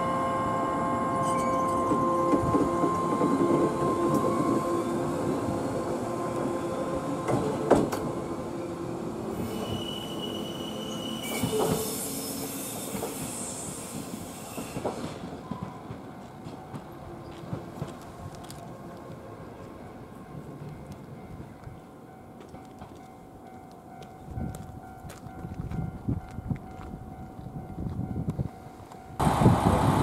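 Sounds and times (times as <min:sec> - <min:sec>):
high wheel squeal: 0:01.2 - 0:02.4, 0:09.3 - 0:15.1
rail joint clacks: 0:01.2 - 0:04.6, 0:07.2 - 0:08.2
electric railcar motor hum: 0:27.5 - 0:30.0.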